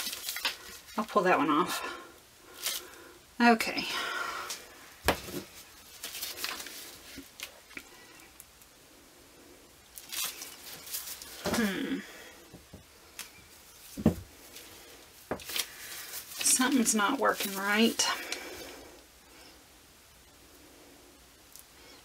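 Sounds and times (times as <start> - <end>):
plastic bag crinkling: 0.0 - 1.2, 2.5 - 3.0, 4.5 - 8.0, 9.9 - 12.3, 13.0 - 18.8.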